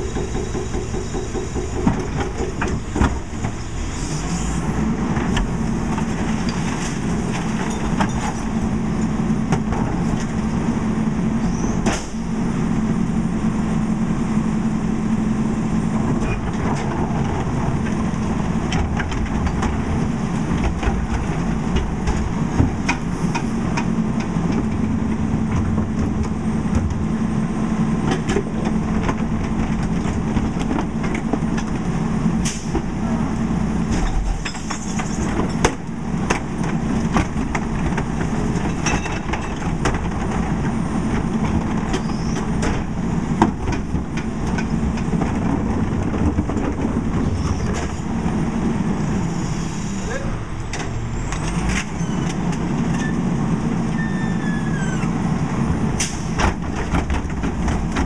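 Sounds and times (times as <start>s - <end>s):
garbage truck running: 0.0s - 58.0s
clanks of carts tipping: 33.9s - 40.8s.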